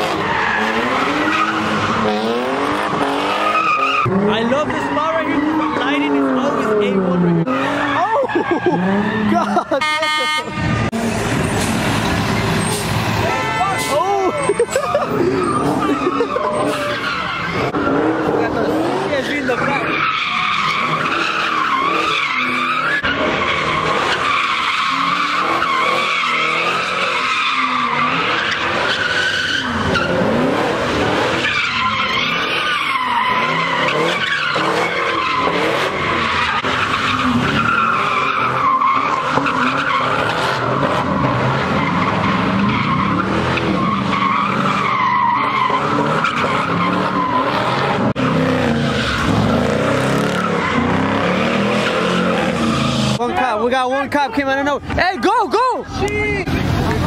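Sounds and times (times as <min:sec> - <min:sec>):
engines revving hard: 0:00.0 - 0:57.0
tires screeching: 0:00.0 - 0:57.0.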